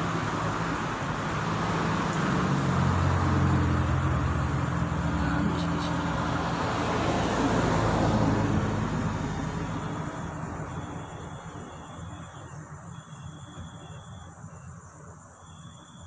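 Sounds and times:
vehicle engine humming: 0.0 - 14.1
background traffic: 0.0 - 16.0.

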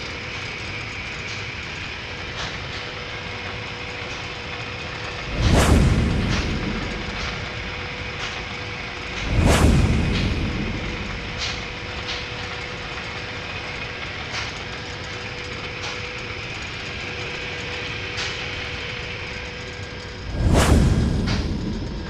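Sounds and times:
machine humming: 0.0 - 22.0
deep boom: 5.3 - 8.3, 9.0 - 12.3, 20.3 - 22.0.

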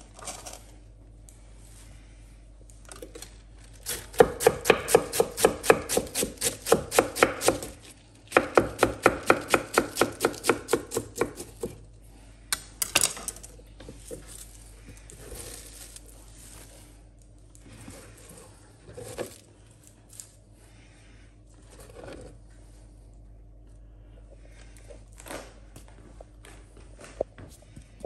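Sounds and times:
knife chopping on wooden board: 3.9 - 7.7, 8.3 - 11.8.

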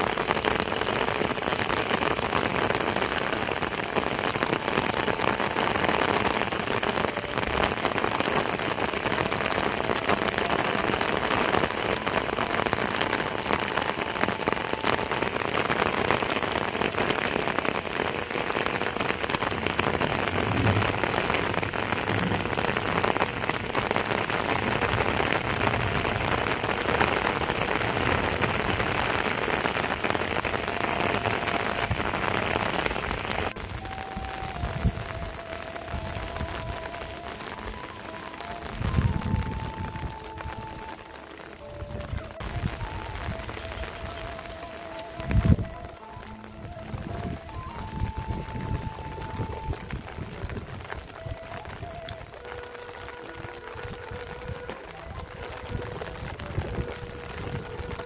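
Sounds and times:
heavy rain: 0.0 - 58.0.

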